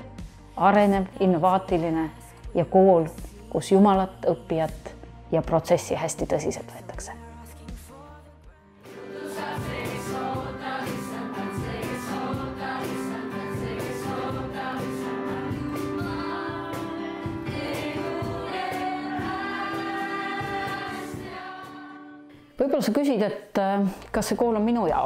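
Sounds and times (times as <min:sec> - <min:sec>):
group singing worship song: 0:07.4 - 0:22.4
steady beat: 0:09.2 - 0:21.6.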